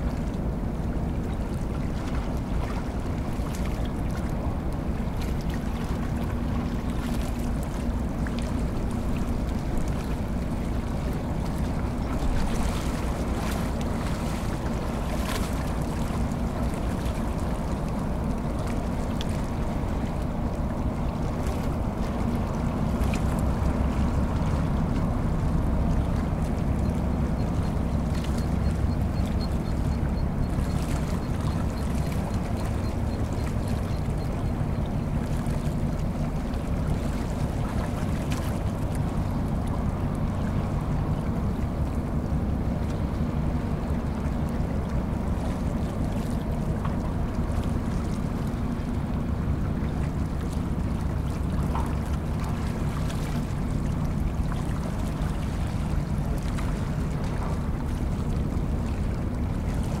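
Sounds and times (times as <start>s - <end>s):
tugboat diesel engines droning: 0.0s - 60.0s.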